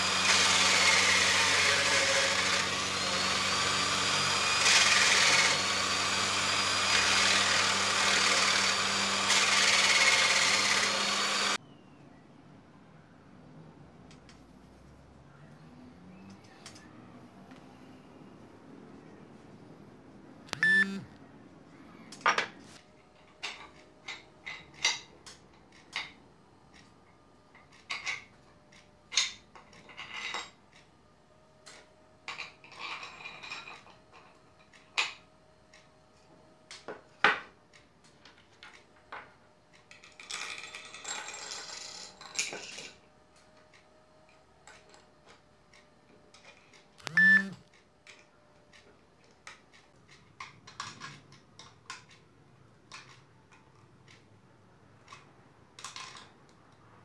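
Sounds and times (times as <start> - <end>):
metal parts clicking on a table: 55.0 - 56.6.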